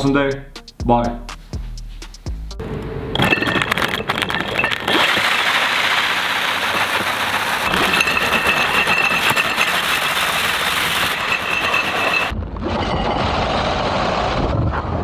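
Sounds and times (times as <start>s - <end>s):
studded wheel grinding over ice: 3.2s - 12.3s.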